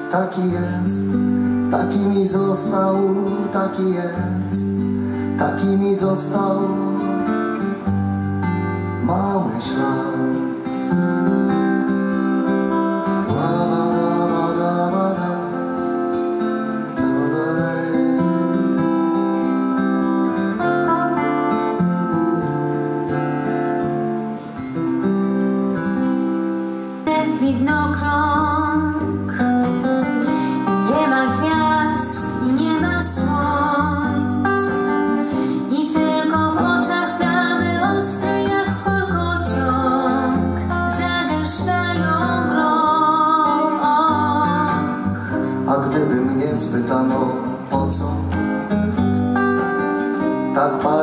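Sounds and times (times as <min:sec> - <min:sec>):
acoustic guitars playing: 0:00.0 - 0:51.0
woman singing: 0:27.0 - 0:29.4, 0:30.1 - 0:45.2.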